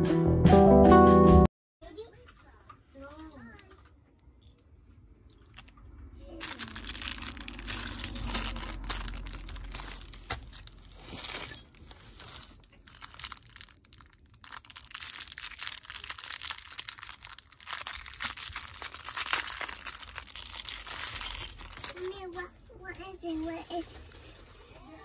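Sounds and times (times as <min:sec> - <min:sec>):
plastic bag crinkling: 0:05.3 - 0:05.8, 0:06.4 - 0:22.4.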